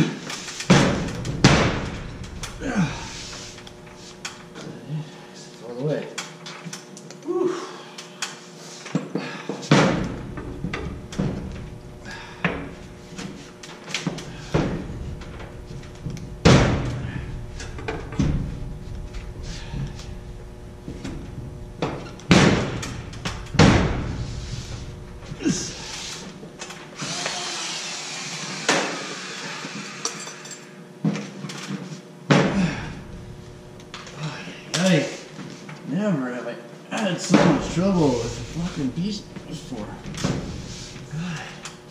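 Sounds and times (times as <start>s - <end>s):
sharp knocks and thumps: 0.7s - 2.4s
drywall scraping hiss: 2.7s - 4.4s, 23.8s - 26.4s, 27.0s - 30.2s, 37.6s - 41.4s.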